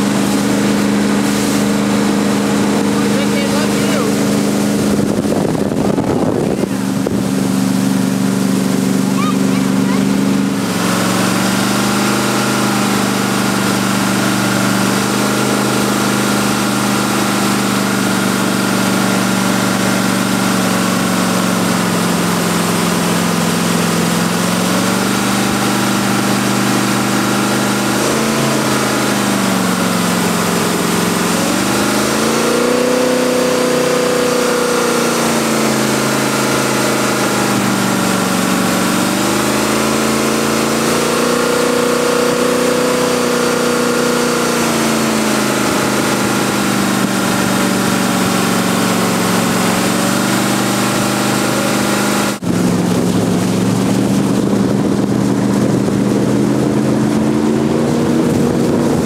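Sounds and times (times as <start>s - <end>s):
boat engine running hard: 0.0s - 59.0s
rushing water and spray: 0.0s - 59.0s.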